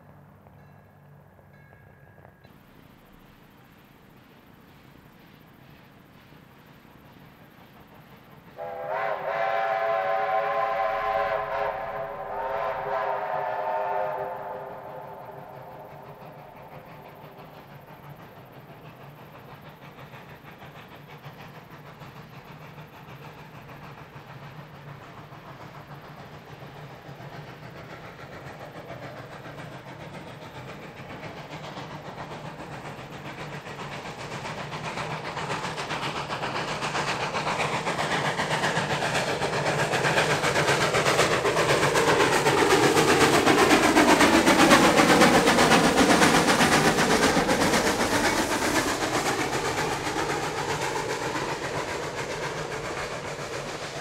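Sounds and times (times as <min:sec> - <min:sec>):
train running low rumble: 0:00.0 - 0:54.0
chime steam whistle blasts: 0:08.6 - 0:16.6.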